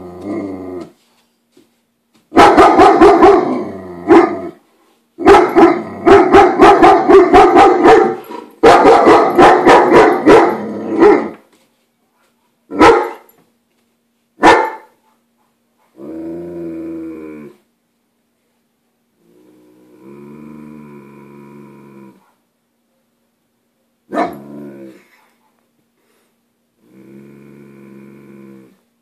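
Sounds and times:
dog growling: 0:00.0 - 0:01.0, 0:03.4 - 0:04.6, 0:10.4 - 0:11.4, 0:15.9 - 0:17.6, 0:19.2 - 0:22.3, 0:24.2 - 0:25.1, 0:26.8 - 0:28.8
dog barking: 0:02.3 - 0:04.5, 0:05.2 - 0:11.4, 0:12.7 - 0:13.3, 0:14.4 - 0:15.3, 0:24.1 - 0:24.4.

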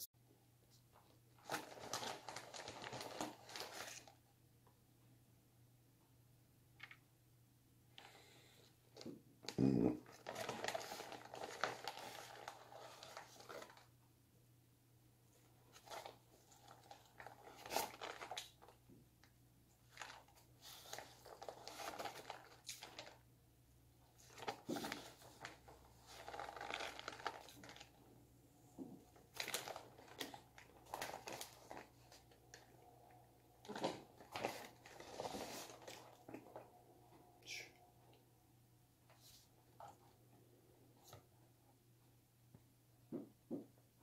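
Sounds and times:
food packaging crinkling: 0:01.4 - 0:04.2, 0:10.1 - 0:13.9, 0:15.7 - 0:18.8, 0:19.8 - 0:23.2, 0:24.2 - 0:28.0, 0:29.2 - 0:32.7, 0:33.6 - 0:36.6.

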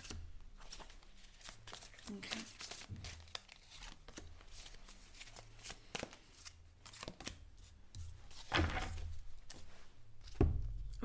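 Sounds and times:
cards shuffled by hand: 0:00.0 - 0:11.0.

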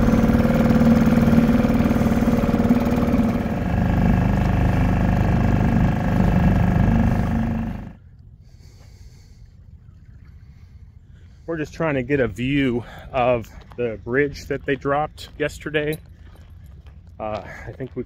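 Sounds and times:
small outboard motor running: 0:00.0 - 0:09.3, 0:13.6 - 0:18.0.

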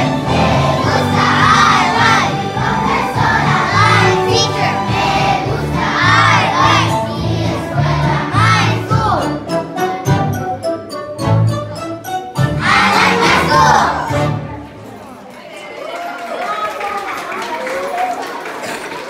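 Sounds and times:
children singing in unison: 0:00.0 - 0:09.2, 0:12.6 - 0:14.2
low accompaniment notes: 0:00.0 - 0:15.0.

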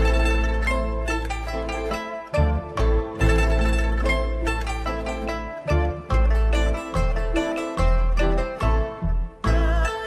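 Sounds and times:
plucked string melody: 0:00.0 - 0:10.0
deep held bass: 0:02.3 - 0:10.0.

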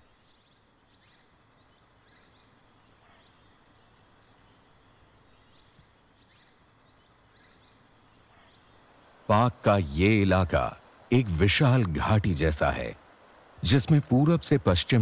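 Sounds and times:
faint bird chirps: 0:00.0 - 0:09.7
faint forest ambience: 0:00.0 - 0:15.0.

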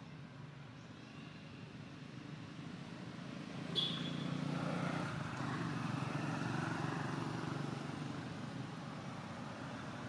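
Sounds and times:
motorbike passing: 0:03.6 - 0:08.4.

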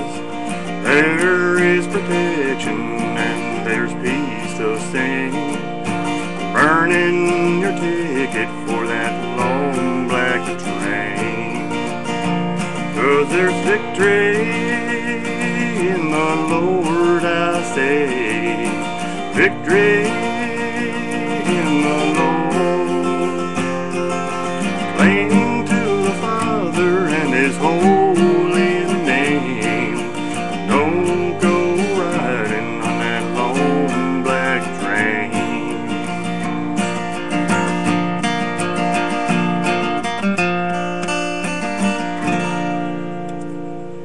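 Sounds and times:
strummed acoustic guitar: 0:00.0 - 0:44.0.

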